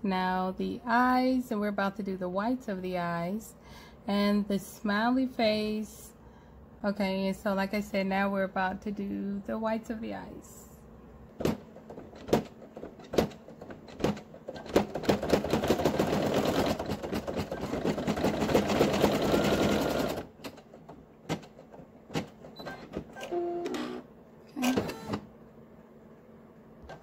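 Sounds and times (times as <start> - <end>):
embroidery machine stitching: 11.9 - 20.7, 24.6 - 25.3.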